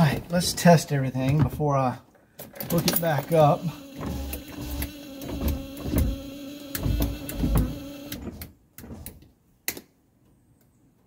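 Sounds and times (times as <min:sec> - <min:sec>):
power window motor humming: 0:03.4 - 0:08.4
dull thumps: 0:04.0 - 0:09.0.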